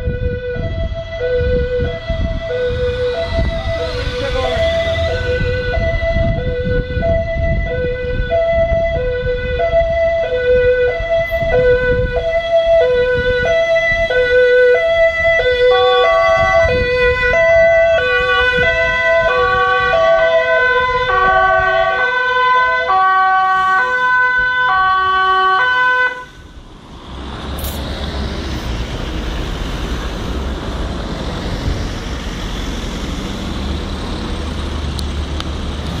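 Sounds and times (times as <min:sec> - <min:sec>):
two-tone police siren: 0:00.0 - 0:26.6
passing cars on brick street: 0:00.0 - 0:36.0.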